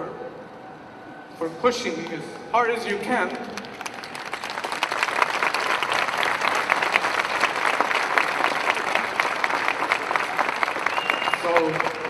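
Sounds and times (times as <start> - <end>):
crowd applauding: 3.4 - 12.0.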